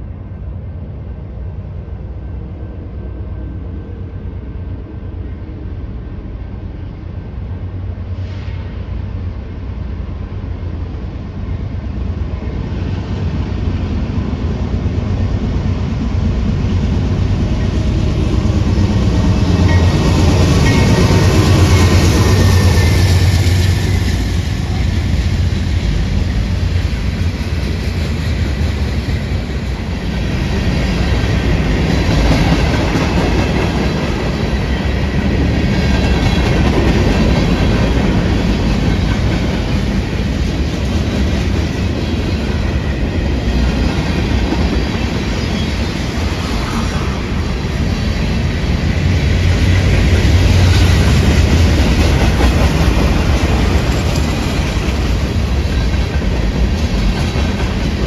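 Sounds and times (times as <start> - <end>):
diesel locomotive engine rumble: 0.0 - 58.0.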